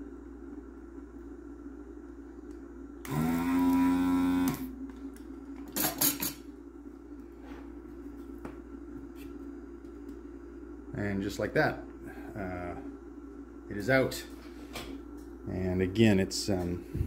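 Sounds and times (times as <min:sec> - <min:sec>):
desoldering vacuum pump buzzing: 0:00.0 - 0:07.2.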